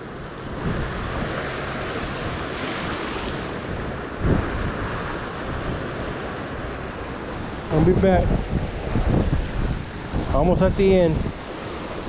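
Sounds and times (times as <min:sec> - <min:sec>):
ocean surf washing: 0:00.0 - 0:12.0
wind buffeting microphone: 0:00.0 - 0:12.0.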